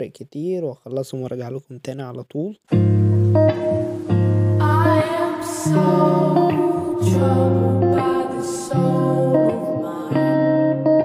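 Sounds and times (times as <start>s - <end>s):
soft wavering melody: 3.0s - 11.0s.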